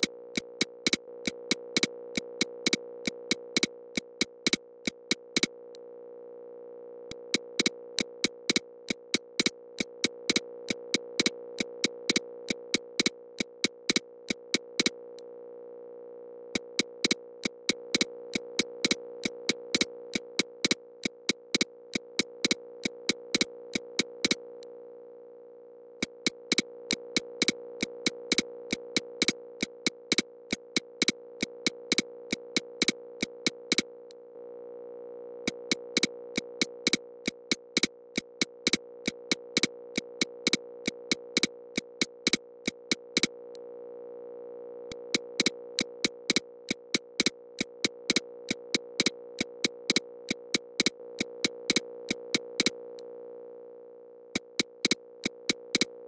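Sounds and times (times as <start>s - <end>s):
sharp evenly spaced clicks: 0.0s - 5.5s, 7.2s - 15.0s, 16.6s - 24.4s, 26.0s - 33.9s, 35.7s - 43.3s, 44.9s - 52.8s, 54.4s - 55.9s.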